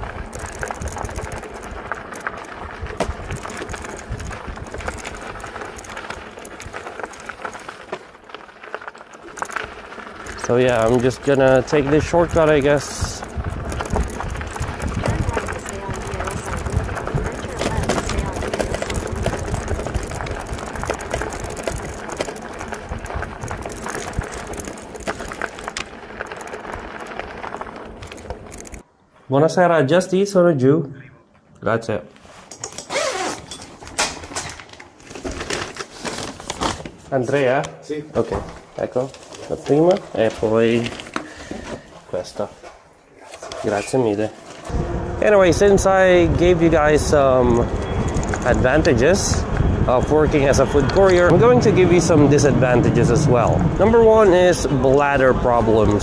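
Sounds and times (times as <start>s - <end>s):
wind rumble on microphone: 0.0s - 7.0s, 10.2s - 28.8s, 44.7s - 56.0s
freewheel ticking: 0.0s - 8.0s, 8.7s - 28.8s, 45.2s - 52.4s
bicycle rattling and clicking: 0.0s - 28.9s, 32.5s - 37.4s, 38.4s - 56.0s.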